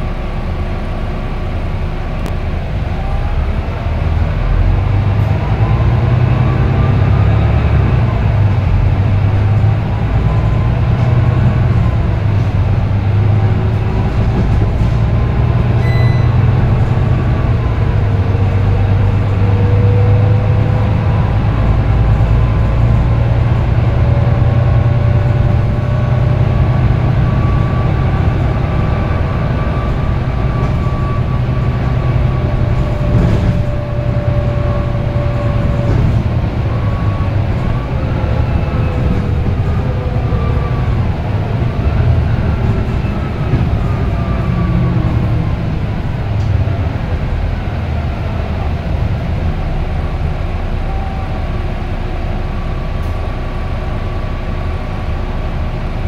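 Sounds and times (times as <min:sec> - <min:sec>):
bus diesel drone: 0:00.0 - 0:56.0
short electronic beep: 0:15.8 - 0:16.5.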